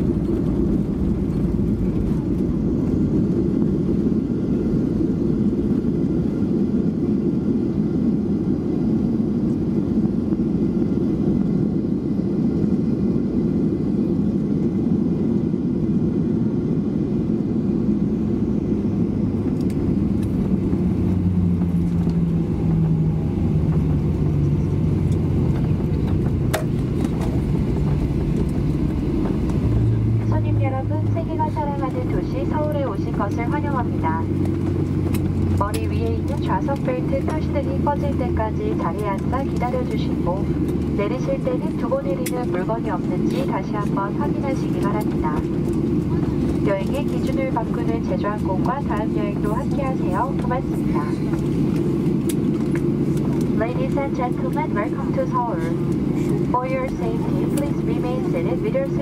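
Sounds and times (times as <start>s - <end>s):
jet engines and wheels rumbling: 0.0s - 59.0s
low hum falling in pitch: 18.8s - 42.0s.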